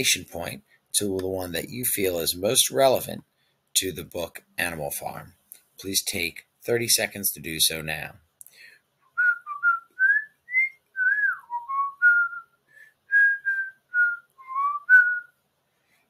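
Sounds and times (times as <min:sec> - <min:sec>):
person whistling a tune: 0:09.2 - 0:15.3.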